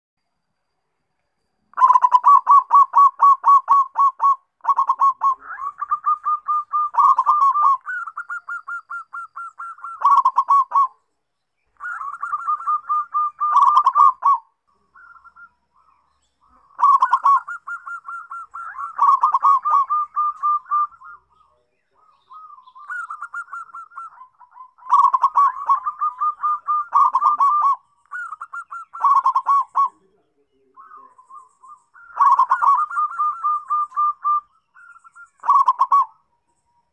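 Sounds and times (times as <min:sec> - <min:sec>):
dove cooing: 0:01.7 - 0:11.0, 0:11.8 - 0:36.6.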